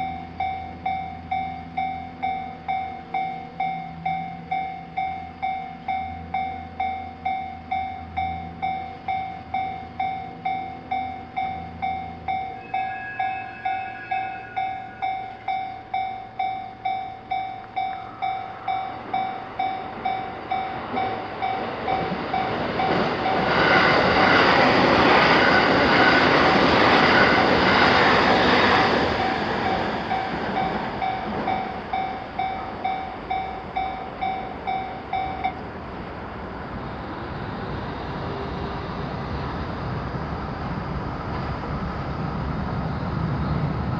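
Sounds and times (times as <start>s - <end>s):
level crossing bell dinging: 0.0s - 23.5s, 28.6s - 35.6s
train passing: 0.0s - 43.9s.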